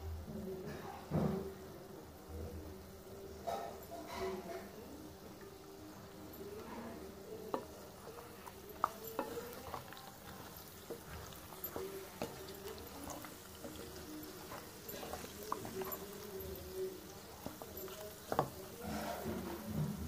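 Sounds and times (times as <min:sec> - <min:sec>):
faint sizzle: 0:00.0 - 0:20.0
spatula scraping frying pan: 0:07.5 - 0:20.0.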